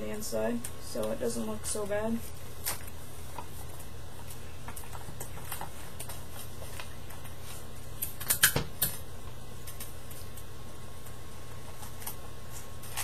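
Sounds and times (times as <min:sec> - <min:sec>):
steady low hum: 0:00.0 - 0:13.0
paper and tape rustling: 0:02.1 - 0:08.5, 0:09.6 - 0:13.0.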